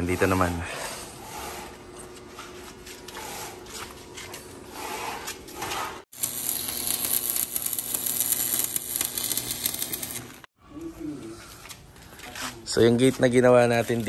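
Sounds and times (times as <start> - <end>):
arc welding crackle: 6.1 - 10.5.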